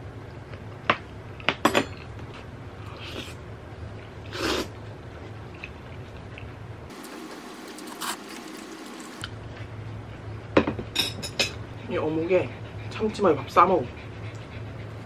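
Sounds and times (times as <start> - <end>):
wet noodle slurps: 4.3 - 4.7, 7.0 - 9.0.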